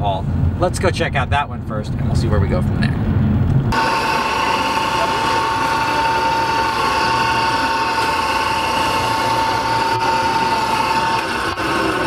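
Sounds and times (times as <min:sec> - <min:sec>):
meat slicer motor whine: 0:03.7 - 0:12.0.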